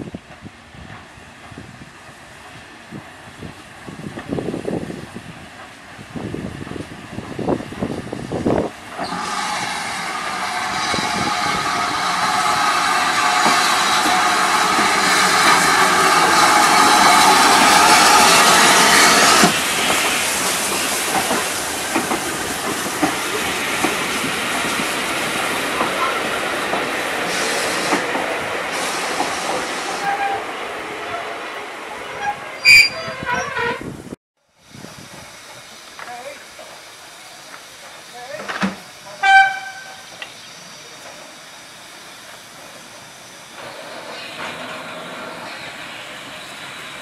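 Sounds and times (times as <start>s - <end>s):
steam hissing from locomotive: 0.1s - 32.2s, 34.5s - 47.0s
wheels clicking over rail joints: 37.5s - 40.4s.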